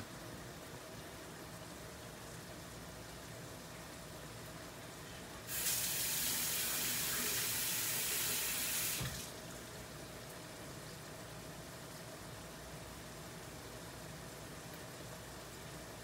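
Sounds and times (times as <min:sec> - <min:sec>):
kitchen tap running: 0:05.5 - 0:09.4.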